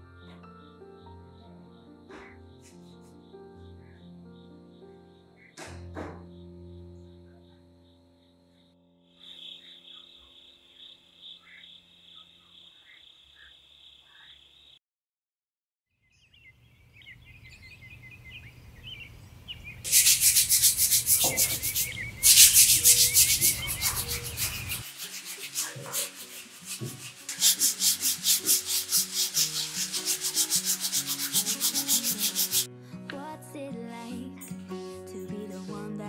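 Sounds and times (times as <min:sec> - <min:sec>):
sandpaper rubbing on wood: 0:19.9 - 0:32.7.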